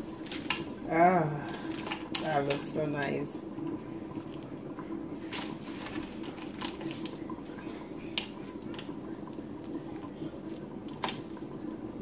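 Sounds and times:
low background hum: 0.0s - 12.0s
dry fish breaking apart: 0.2s - 0.7s, 5.3s - 7.2s, 10.4s - 11.3s.

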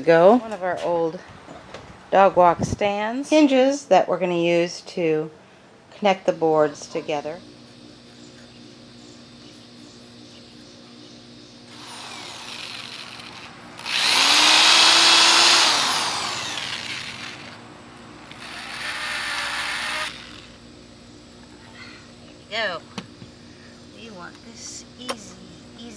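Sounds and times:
electric drill boring holes: 11.7s - 17.6s, 18.3s - 20.6s.

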